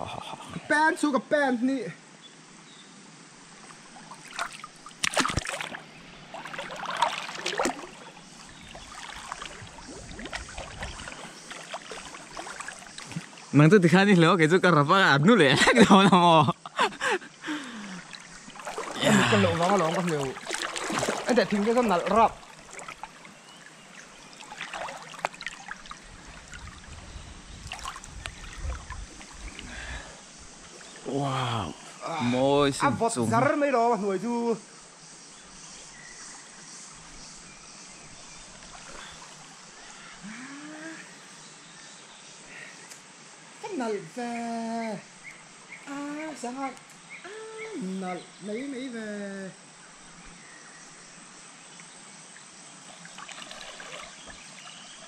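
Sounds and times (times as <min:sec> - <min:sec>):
water splashing and running: 0:03.6 - 0:14.5, 0:16.8 - 0:31.5, 0:38.1 - 0:40.0, 0:52.8 - 0:55.0.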